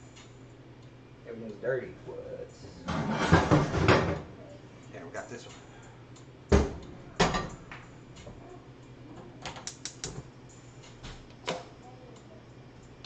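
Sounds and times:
burner igniter clicking: 9.4 - 12.3.

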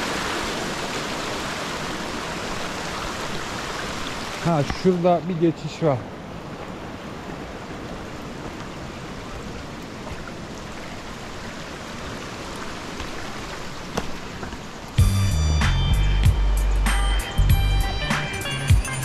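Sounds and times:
stream babbling over stones: 0.0 - 15.0.

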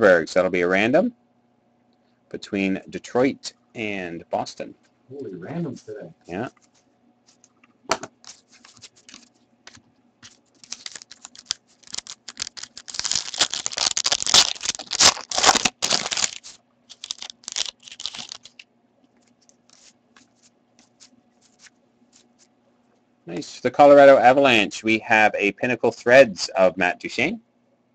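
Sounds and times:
cards clicking: 8.2 - 18.6
foil wrapper tearing and crinkling: 8.2 - 18.6, 19.4 - 22.5.

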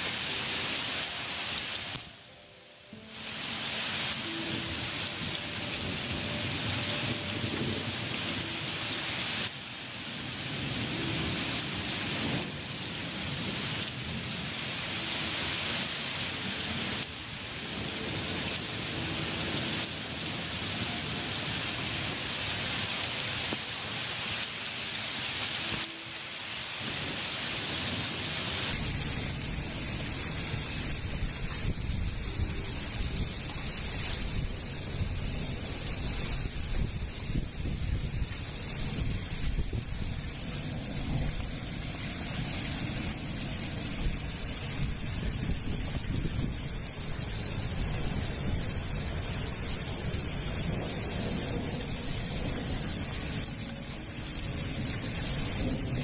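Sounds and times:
heavy rain: 0.0 - 56.0
thunder rumbling: 26.8 - 56.0.

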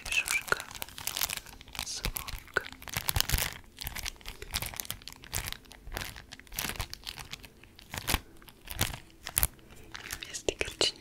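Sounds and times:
plastic packet crinkling: 0.0 - 11.0.

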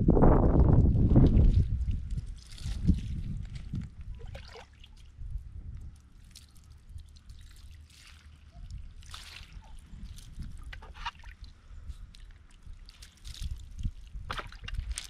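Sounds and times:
water trickling and dripping: 1.1 - 15.0.

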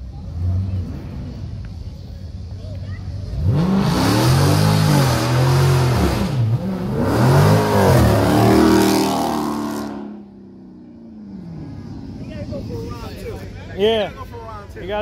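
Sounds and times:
car engine revving hard: 3.3 - 10.3.

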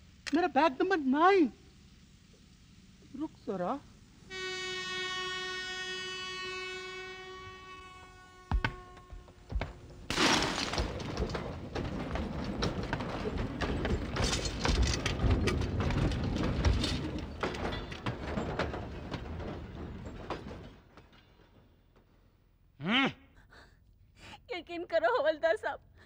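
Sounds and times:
thuds: 8.5 - 22.1
clay pots breaking: 10.1 - 17.8.

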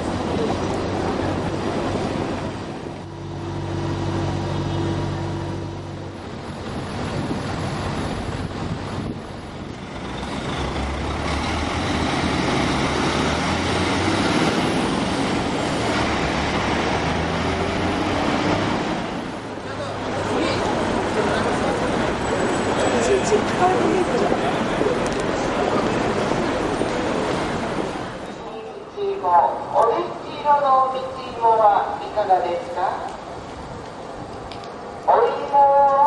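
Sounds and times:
bus engine running: 0.0 - 28.8
diesel truck passing: 0.0 - 28.9.

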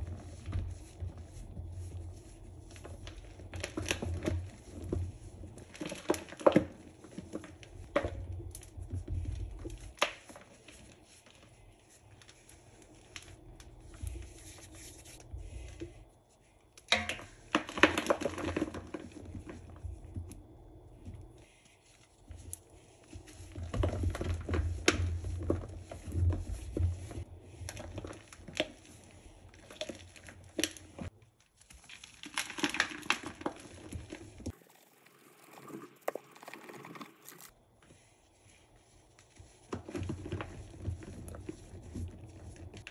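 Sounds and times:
hands crushing powder chunks: 27.2 - 34.5.

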